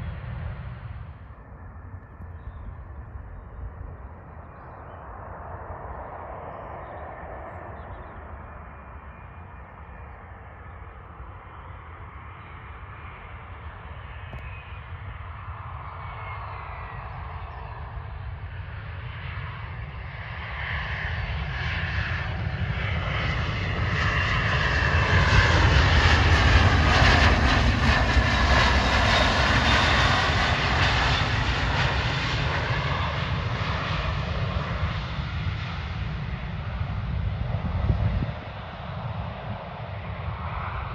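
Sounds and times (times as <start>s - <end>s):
jet engines landing: 0.0s - 40.9s.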